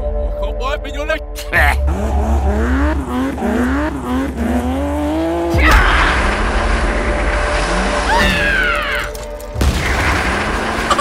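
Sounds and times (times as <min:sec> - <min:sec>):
car engine accelerating: 0:01.7 - 0:08.2, 0:09.2 - 0:11.0.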